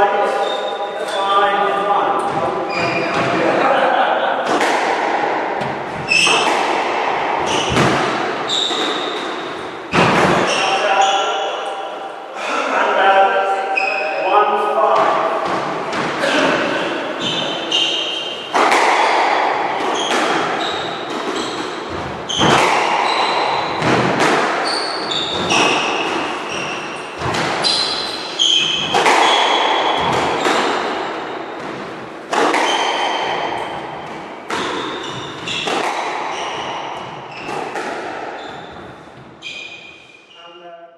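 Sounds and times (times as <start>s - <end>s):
squash ball hitting rackets and walls: 0.2s - 12.1s, 13.7s - 40.2s
shoes squeaking on wooden floor: 2.2s - 3.5s, 5.6s - 6.8s, 7.4s - 11.5s, 16.2s - 18.6s, 19.8s - 31.8s, 32.4s - 40.4s.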